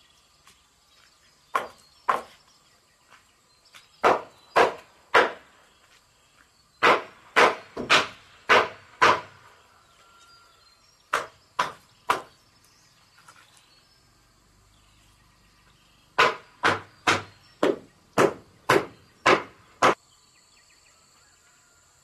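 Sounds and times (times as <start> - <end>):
machete chopping wood: 4.0 - 5.5, 6.8 - 9.4, 11.1 - 12.3, 16.2 - 20.0.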